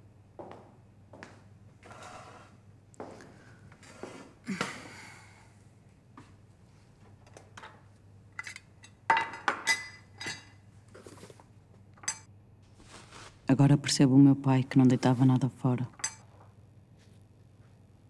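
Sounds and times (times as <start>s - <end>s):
tools and jars knocking on wood: 16.0s - 16.2s.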